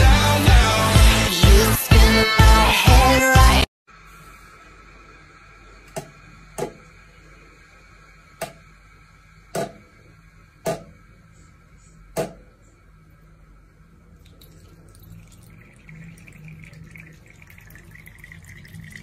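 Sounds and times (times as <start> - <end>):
low room hum: 3.9 - 19.0
water drips into basin: 14.2 - 19.0.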